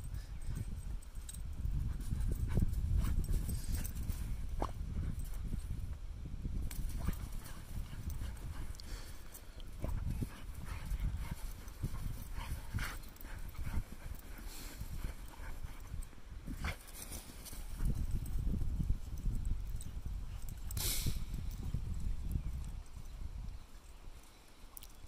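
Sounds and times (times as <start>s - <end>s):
steady low rumble: 0.0s - 23.5s.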